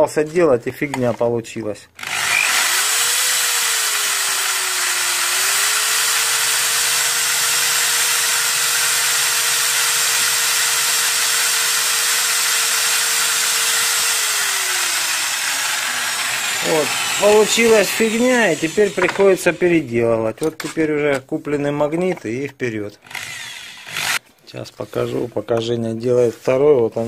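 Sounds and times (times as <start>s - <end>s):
electric drill drilling: 2.0s - 19.5s, 23.0s - 24.2s.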